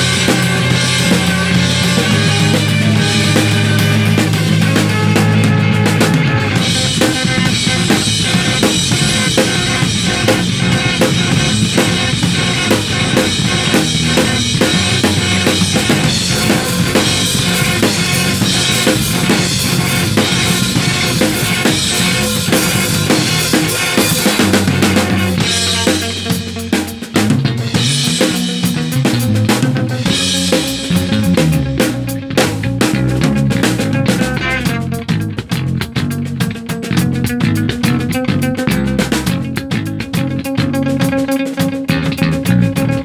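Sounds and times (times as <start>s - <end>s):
bass guitar played percussively: 0.0s - 43.0s.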